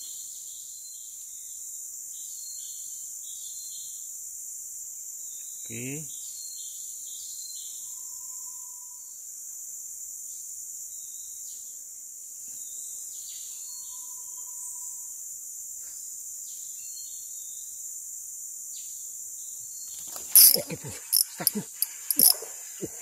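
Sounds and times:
insects chorus: 12.5 - 23.0.

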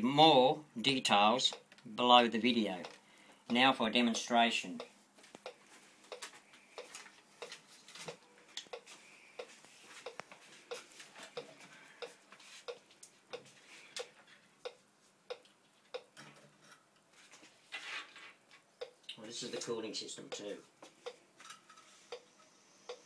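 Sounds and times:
clock ticking: 2.8 - 6.2, 11.4 - 16.1, 18.8 - 19.7, 20.3 - 21.2.

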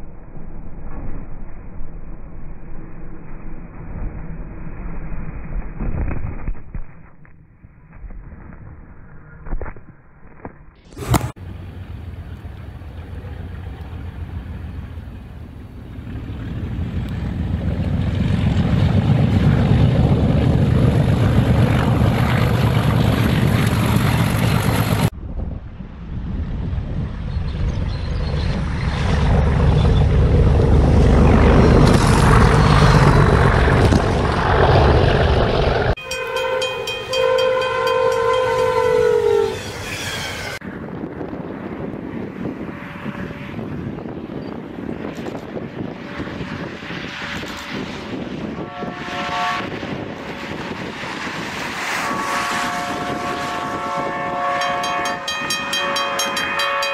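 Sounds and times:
train rumbling through snow: 11.0 - 56.9
train horn: 36.0 - 40.3, 42.6 - 44.1, 48.6 - 50.8, 51.8 - 56.9.

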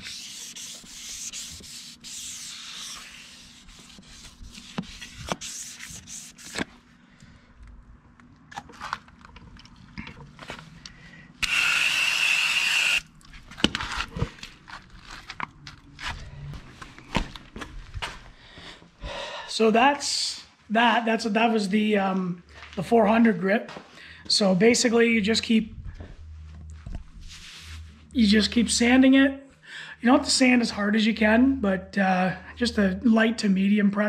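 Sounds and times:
hand sanding strokes: 0.0 - 6.6.

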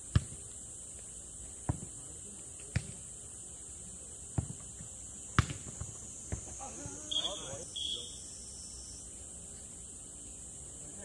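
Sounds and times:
ball kicked and bouncing: 0.1 - 0.4, 1.6 - 1.9, 4.3 - 7.0.

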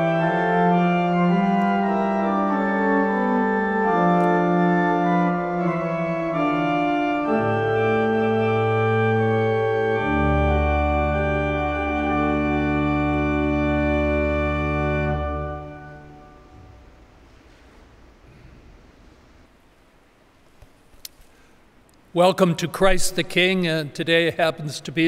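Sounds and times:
organ playing slow chords: 0.0 - 19.2.

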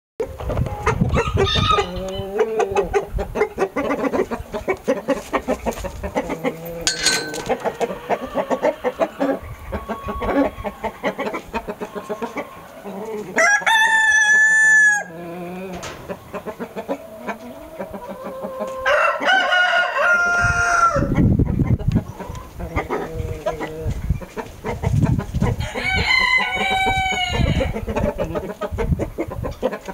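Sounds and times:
chickens clucking: 0.2 - 29.9
rooster crowing: 13.4 - 15.1, 18.8 - 21.1, 25.6 - 27.7.

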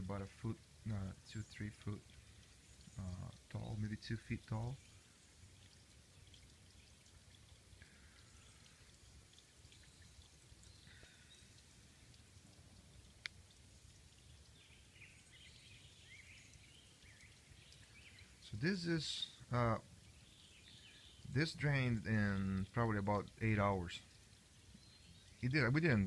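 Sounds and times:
distant bird chirps: 7.8 - 12.2, 13.5 - 26.0.

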